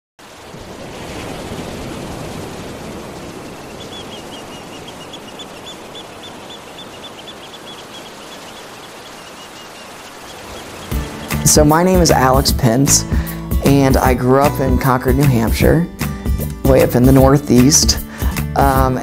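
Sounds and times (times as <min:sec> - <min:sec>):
small waves washing onto sand: 0:00.2 - 0:13.3
bird chirping: 0:03.6 - 0:12.6.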